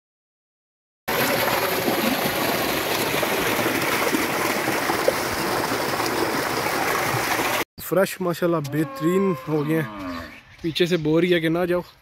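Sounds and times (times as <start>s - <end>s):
water gushing into a channel: 1.1s - 7.6s.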